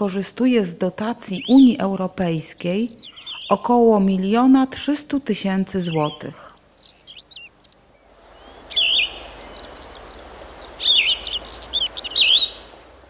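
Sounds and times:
songbirds chirping and whistling: 0:01.2 - 0:01.9, 0:02.7 - 0:04.4, 0:05.7 - 0:13.0
steady hiss: 0:06.0 - 0:13.0.

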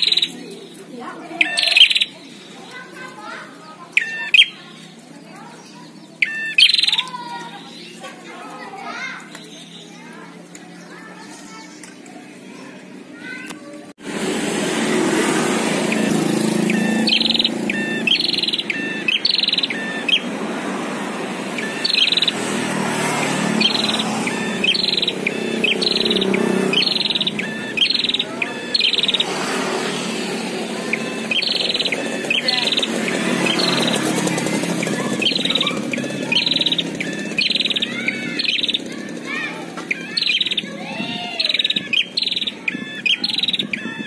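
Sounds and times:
bird calling sharp note: 0:00.0 - 0:00.4, 0:01.4 - 0:04.8, 0:06.2 - 0:07.8, 0:15.3 - 0:20.5, 0:21.4 - 0:44.0.

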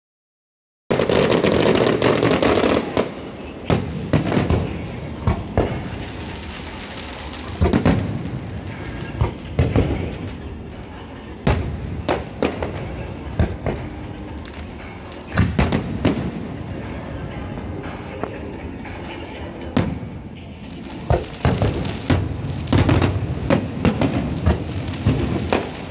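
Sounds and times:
fireworks crackling and booming: 0:00.9 - 0:25.9
sharp firework bangs: 0:07.2 - 0:10.2.

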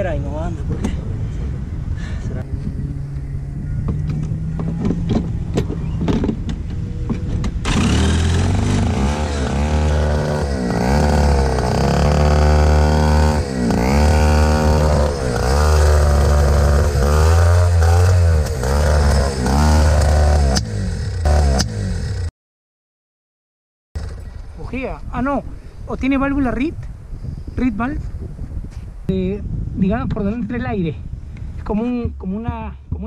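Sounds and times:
kart engine revving: 0:02.5 - 0:22.3
electric starter cranking: 0:07.4 - 0:22.2.

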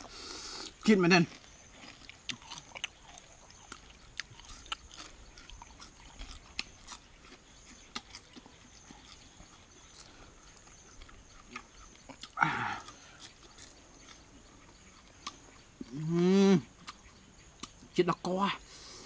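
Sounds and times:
person chewing crunchy food: 0:00.0 - 0:18.0.

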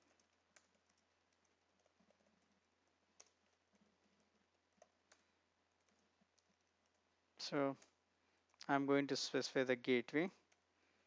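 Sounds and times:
soft keyboard typing: 0:00.0 - 0:08.8, 0:10.1 - 0:10.8.

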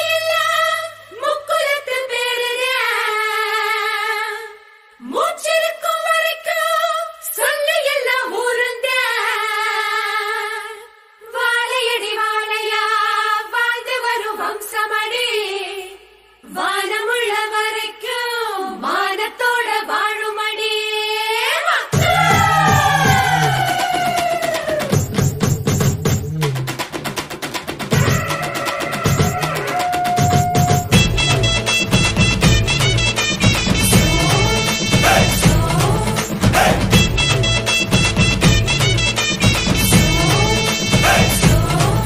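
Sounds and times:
high solo voice singing: 0:33.9 - 0:37.0.

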